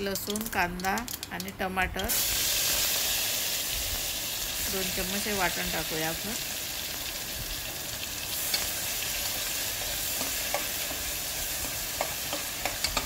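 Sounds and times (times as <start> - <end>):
paste sizzling in hot oil: 2.1 - 13.0
metal spoon clinking against pot: 10.1 - 13.0.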